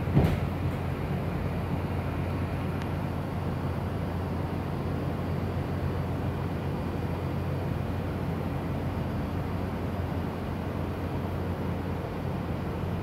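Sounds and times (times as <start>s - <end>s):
subway car hum and rumble: 0.0s - 13.0s.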